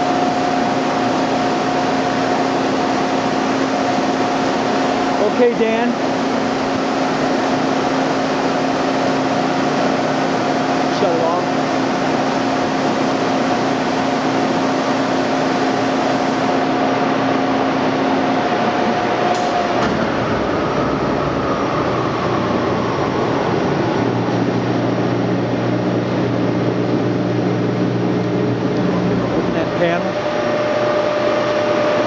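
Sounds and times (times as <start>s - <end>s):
grinder machine humming: 0.0s - 32.0s
low hum: 17.4s - 32.0s.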